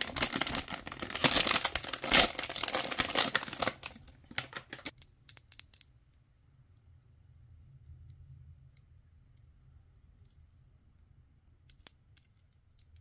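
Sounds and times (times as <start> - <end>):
foil bag tearing and crinkling: 0.0 - 4.9.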